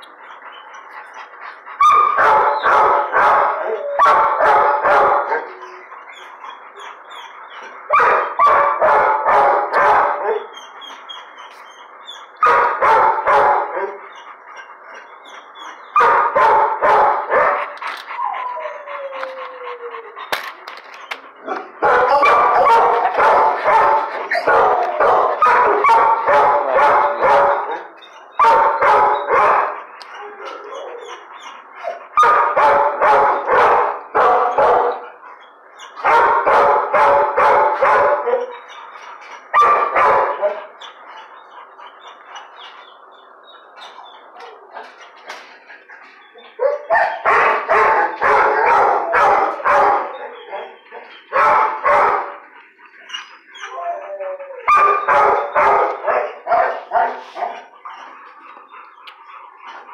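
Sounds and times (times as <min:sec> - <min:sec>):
dog barking: 0:01.8 - 0:05.6, 0:07.9 - 0:10.5, 0:12.4 - 0:14.0, 0:15.9 - 0:17.7, 0:21.4 - 0:27.8, 0:28.4 - 0:29.8, 0:32.2 - 0:35.0, 0:36.0 - 0:38.6, 0:39.6 - 0:40.7, 0:46.6 - 0:52.4, 0:54.6 - 0:57.7.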